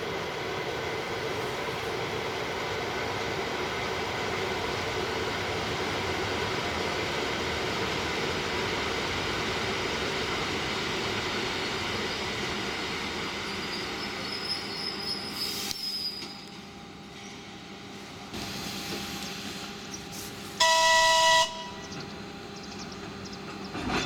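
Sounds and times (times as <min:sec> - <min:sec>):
train rolling and motor noise: 0:00.0 - 0:24.0
high brake squeal: 0:13.7 - 0:16.6.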